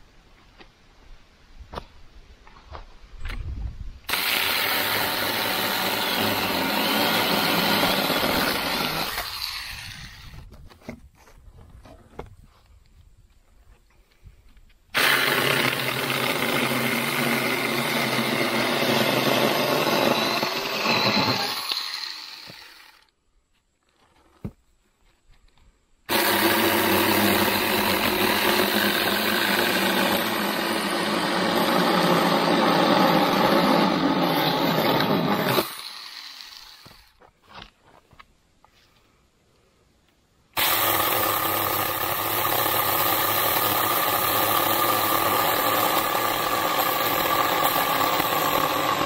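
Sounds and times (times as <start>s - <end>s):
electric chainsaw cutting log: 4.1s - 10.5s, 15.0s - 23.1s, 26.1s - 37.2s, 40.6s - 49.0s.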